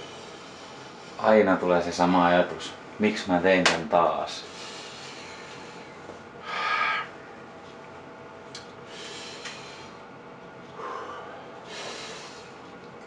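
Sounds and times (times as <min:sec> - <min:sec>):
man breathing out hard: 0:06.4 - 0:07.1.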